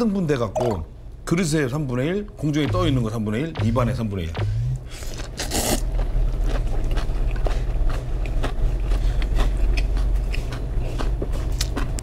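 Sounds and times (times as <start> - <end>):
low hum: 2.3 - 12.0
man slurping noodles: 5.1 - 5.8.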